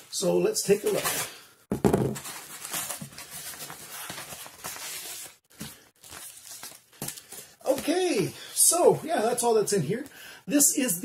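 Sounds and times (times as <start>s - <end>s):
paper mailer rustling and crinkling: 2.1s - 8.3s.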